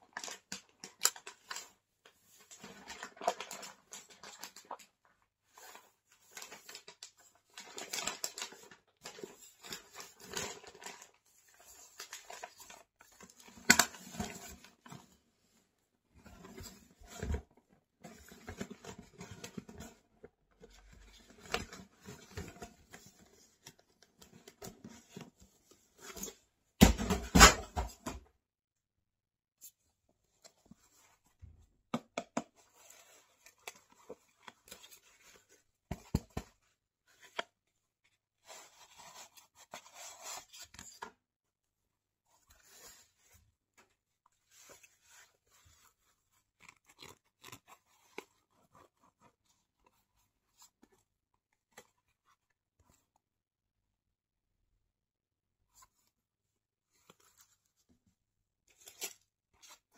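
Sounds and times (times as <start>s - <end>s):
cardboard box and packaging rustling: 0.1s - 15.6s, 16.2s - 28.2s, 32.4s - 41.2s.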